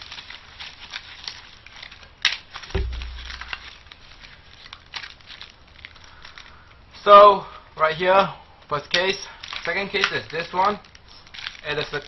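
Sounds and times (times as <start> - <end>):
plastic packaging crinkling: 0.0 - 6.8, 8.9 - 12.0
dull low thump: 2.8 - 3.8.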